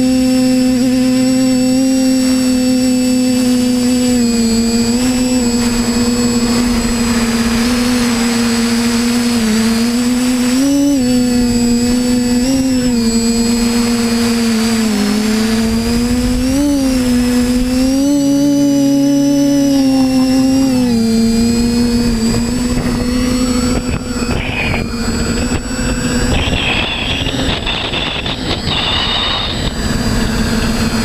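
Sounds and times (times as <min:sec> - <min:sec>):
drone motors humming: 0:00.0 - 0:31.0
rushing noise: 0:04.5 - 0:11.6, 0:24.1 - 0:31.0.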